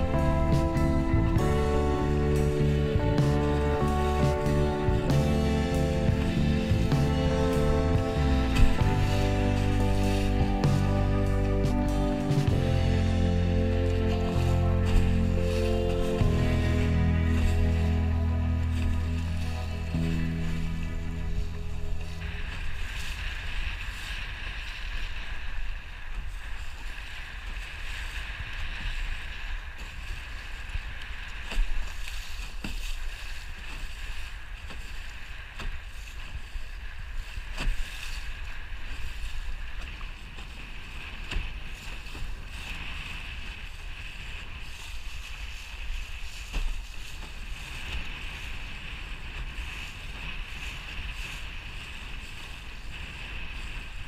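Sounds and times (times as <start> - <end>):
bow slapping into waves: 0.0 - 24.3
water rushing past hull: 0.0 - 54.0
wind rumbling on microphone: 0.0 - 54.0.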